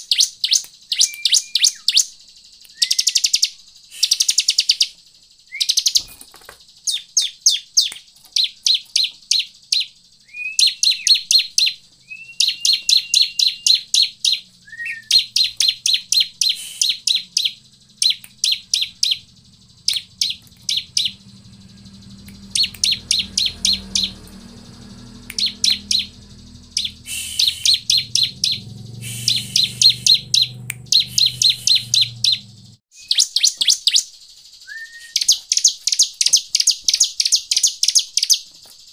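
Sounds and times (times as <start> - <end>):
bird calling with sharp chip notes: 0.0 - 6.2, 6.9 - 38.5.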